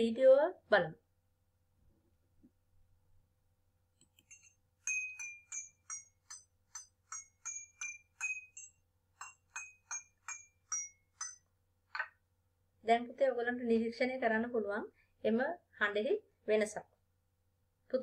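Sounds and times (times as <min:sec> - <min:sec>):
spoon tapping ringing glasses: 0:04.2 - 0:12.2.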